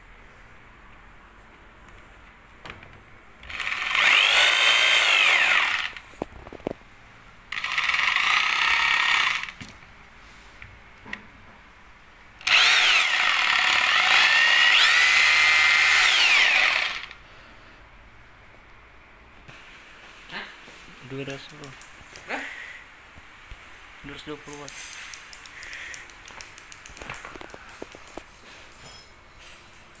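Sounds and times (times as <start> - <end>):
rotary hammer motor whining: 3.4 - 6.0, 7.5 - 9.6, 12.4 - 17.2
clicks: 24.5 - 28.3.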